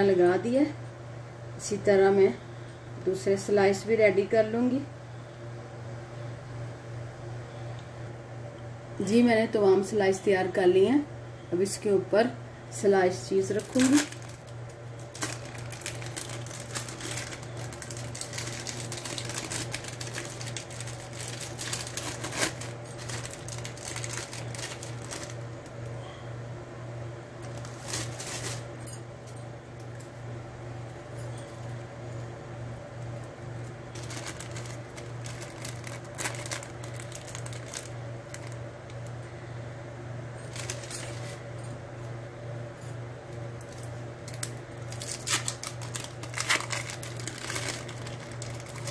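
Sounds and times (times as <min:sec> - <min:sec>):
steady low hum: 0:00.0 - 0:48.9
plastic film crinkling: 0:13.5 - 0:25.8, 0:27.5 - 0:28.8, 0:33.9 - 0:39.1, 0:40.5 - 0:41.4, 0:43.6 - 0:48.9.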